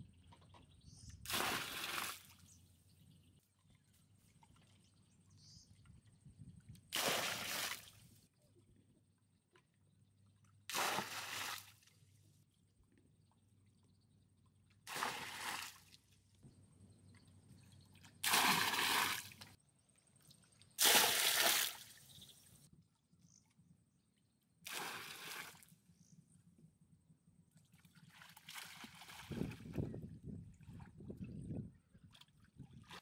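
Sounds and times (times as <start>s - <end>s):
water poured splashing into a pool: 1.3s - 2.4s, 6.9s - 8.0s, 10.7s - 11.8s, 14.9s - 15.9s, 18.2s - 19.5s, 20.8s - 22.0s, 24.7s - 25.6s
person sloshing through water: 17.9s - 19.6s, 27.8s - 29.9s.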